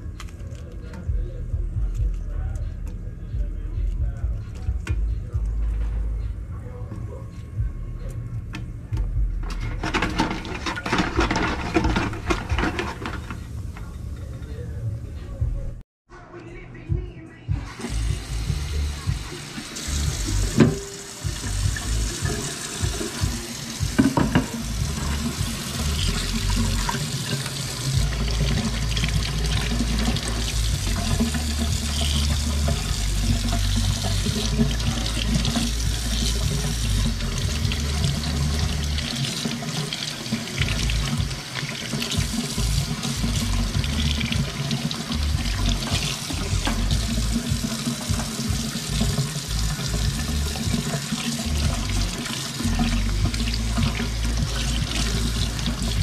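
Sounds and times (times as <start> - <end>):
tap running into metal sink: 19.1 - 56.0.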